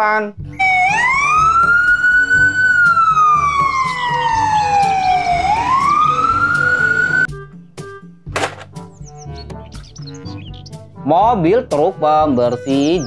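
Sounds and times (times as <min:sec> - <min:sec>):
ambulance siren wailing: 0:00.6 - 0:07.3.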